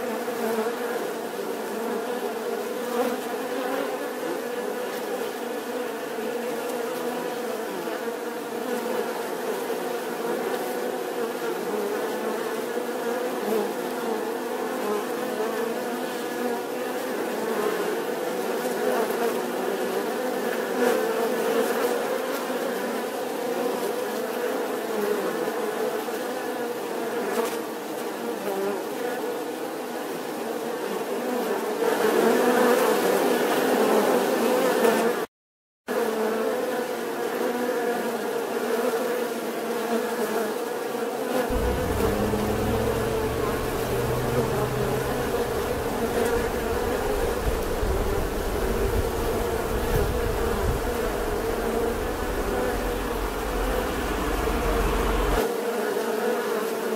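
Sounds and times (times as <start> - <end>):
honeybees buzzing: 41.5 - 55.4
low rumble: 41.5 - 55.4.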